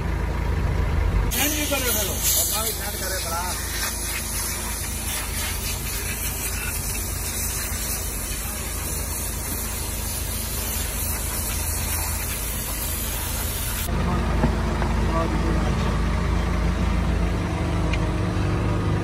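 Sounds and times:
compressed-air spray gun hissing: 1.3s - 13.9s.

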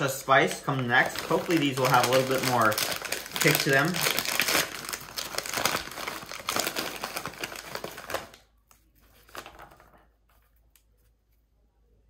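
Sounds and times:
plastic snack bag crinkling: 0.0s - 8.5s.

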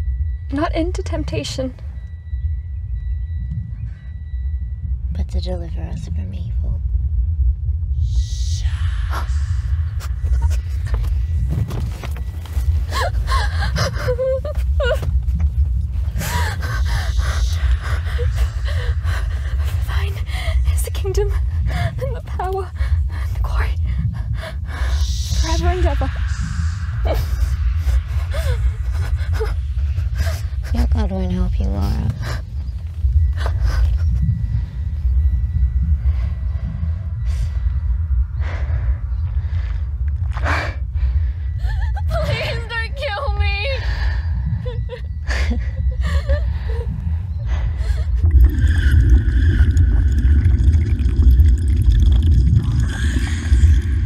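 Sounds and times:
steady low rumble: 0.0s - 54.0s
woman gasping and sobbing: 12.7s - 15.3s, 16.2s - 31.0s, 40.5s - 42.7s, 43.6s - 48.3s.

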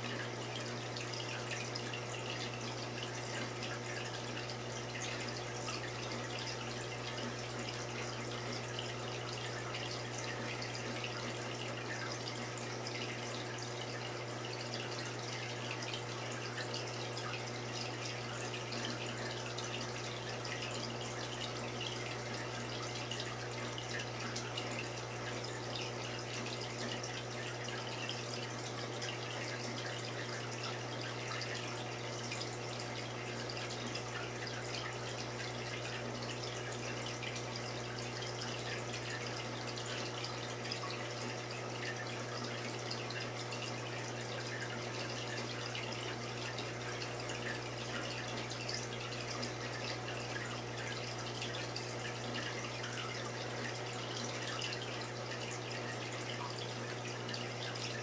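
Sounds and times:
low pump hum: 0.0s - 58.0s
water trickling and splashing: 0.0s - 58.0s.

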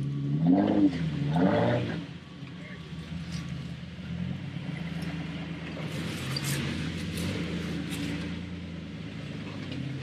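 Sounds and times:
engine running at low revs: 0.0s - 10.0s.

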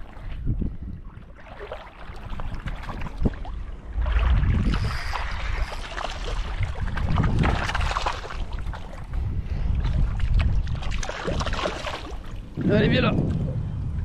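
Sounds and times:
seawater sloshing and splashing: 0.0s - 13.6s
low rumble: 3.4s - 7.9s, 12.3s - 14.0s.

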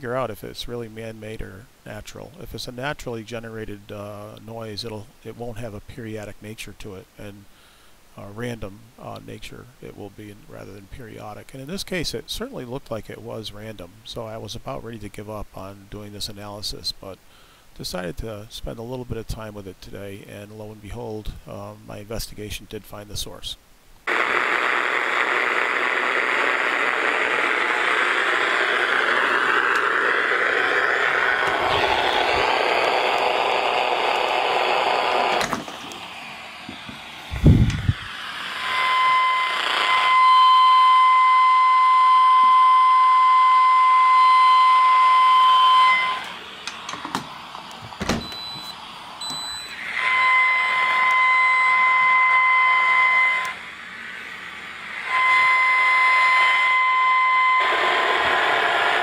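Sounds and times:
radio static hiss: 0.0s - 41.5s, 44.9s - 59.0s
high-pitched electrical whine: 24.1s - 59.0s.

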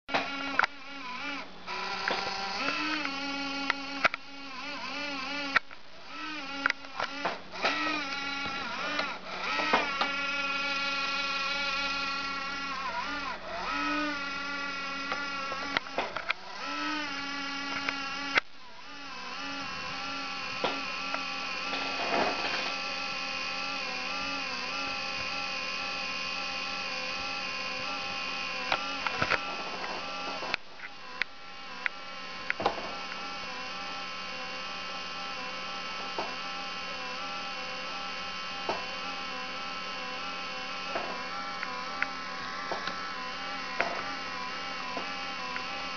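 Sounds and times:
laptop fan whining: 0.1s - 45.9s
scattered clicks: 2.0s - 4.2s, 6.5s - 10.2s.

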